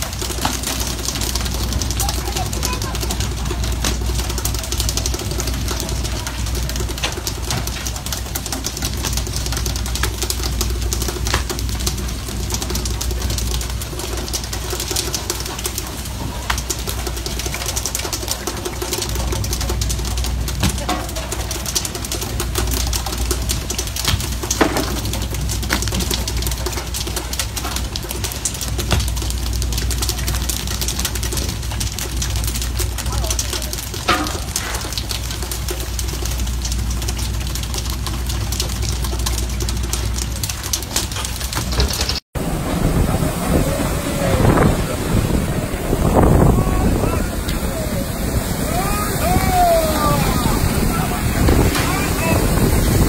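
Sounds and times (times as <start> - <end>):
water rushing along hull: 0.0 - 53.0
low rumble: 19.0 - 53.0
boat engine droning: 42.4 - 53.0.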